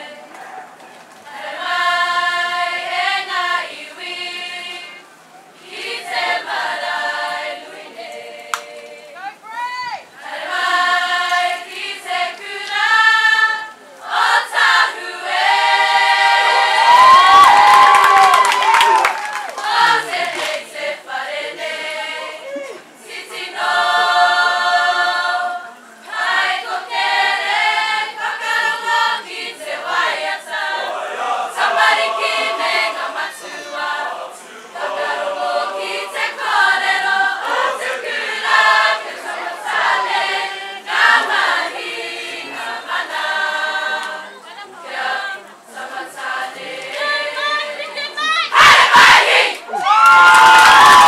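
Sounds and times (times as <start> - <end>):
group of students singing: 0.0 - 0.4, 1.3 - 5.0, 5.6 - 9.2, 10.2 - 17.4, 19.6 - 22.4, 23.0 - 49.7.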